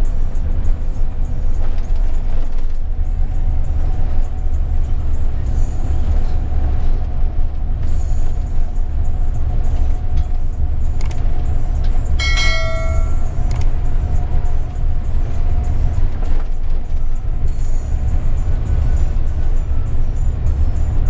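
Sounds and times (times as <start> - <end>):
coach engine and tyre drone: 0.0 - 21.0
short electronic chime: 12.2 - 13.3.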